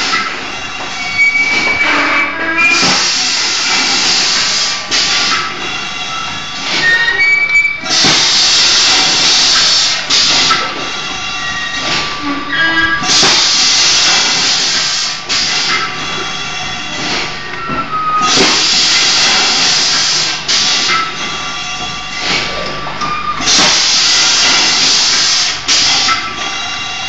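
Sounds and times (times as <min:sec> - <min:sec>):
machine running mechanically: 0:00.0 - 0:27.0
short high squeaks: 0:01.0 - 0:03.0, 0:06.8 - 0:07.9, 0:11.5 - 0:13.1
pneumatic air hiss bursts: 0:02.7 - 0:07.0, 0:07.8 - 0:12.2, 0:12.8 - 0:17.4, 0:18.2 - 0:22.6, 0:23.4 - 0:27.0.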